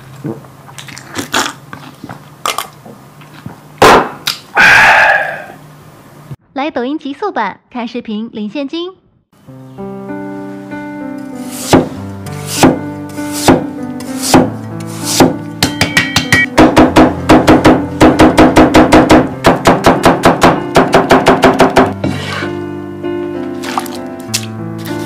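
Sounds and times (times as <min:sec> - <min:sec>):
background music: 0:09.4 - 0:25.0
cleaver chopping on wooden board: 0:11.7 - 0:14.5, 0:15.1 - 0:21.9.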